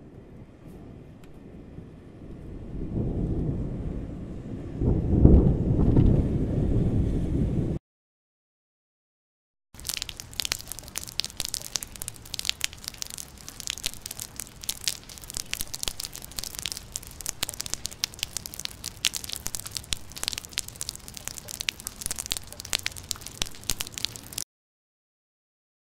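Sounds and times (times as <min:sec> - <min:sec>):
rain falling: 0:09.8 - 0:24.4
raindrop spatters: 0:09.8 - 0:24.4.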